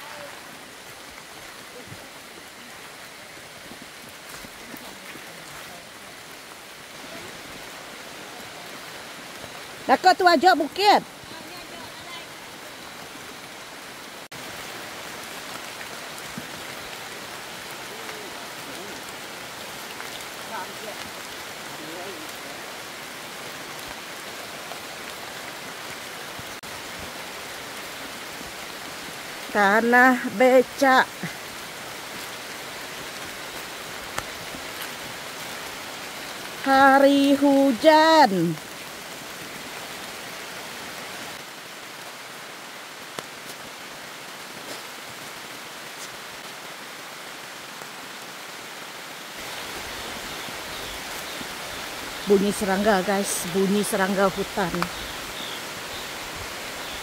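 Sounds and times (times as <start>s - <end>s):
insect chorus: 0.0s - 43.6s, 48.8s - 57.0s
steady rain hiss: 0.0s - 57.0s.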